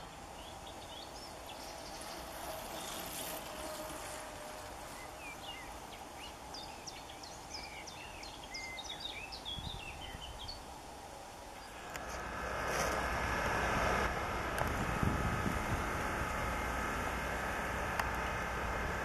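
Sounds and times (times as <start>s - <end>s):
birds singing: 0.0s - 3.2s, 4.8s - 10.7s
steady background noise: 0.0s - 19.0s.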